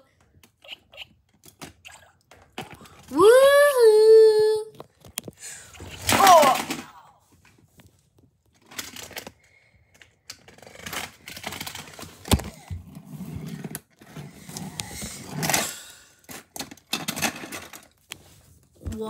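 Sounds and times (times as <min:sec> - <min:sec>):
plastic bricks clicking and scraping: 0:08.5 - 0:18.0.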